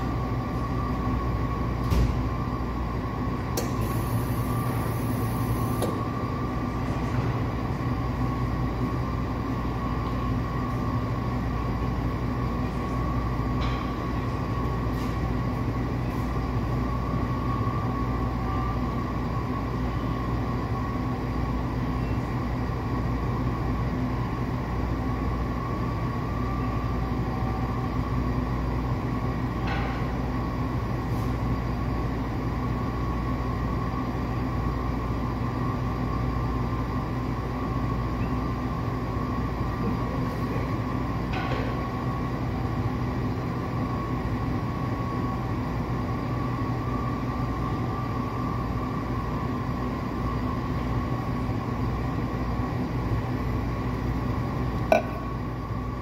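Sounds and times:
cafe machinery humming: 0.0 - 56.0.

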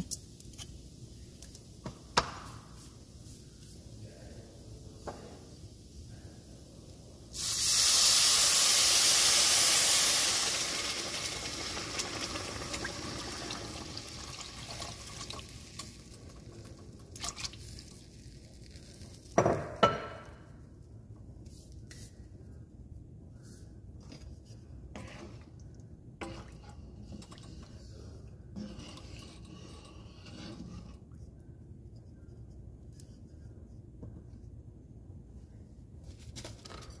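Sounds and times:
broth sizzling in hot pan: 7.3 - 16.4
light stirring: 23.4 - 34.4.

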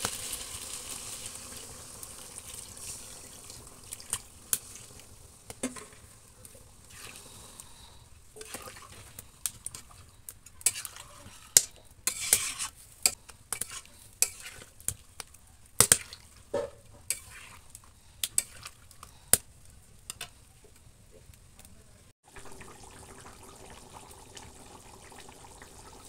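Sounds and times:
metal spatula scraping a pan: 8.4 - 15.0, 15.8 - 18.9.

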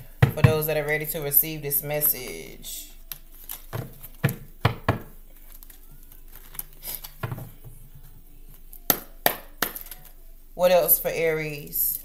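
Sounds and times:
cards being shuffled: 3.1 - 4.6, 5.3 - 7.6, 9.5 - 10.2.

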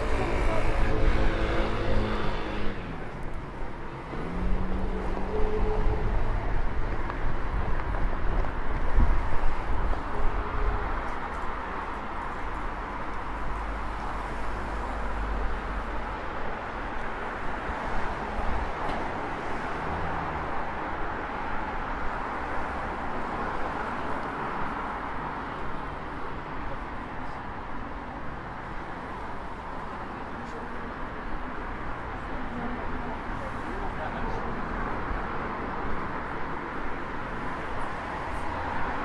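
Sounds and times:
passersby talking: 0.0 - 4.0, 23.2 - 39.0
road traffic passing: 0.0 - 39.0.

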